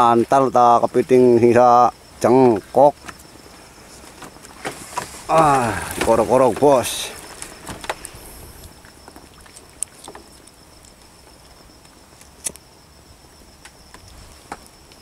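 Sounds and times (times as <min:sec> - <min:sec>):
insect trill: 0:00.0 - 0:15.0
water trickling and dripping: 0:08.6 - 0:11.9.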